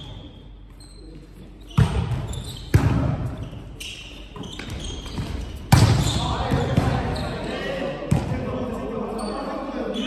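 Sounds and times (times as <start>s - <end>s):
volleyball slaps echoing: 1.8s - 3.4s, 5.1s - 7.2s, 8.1s - 8.5s.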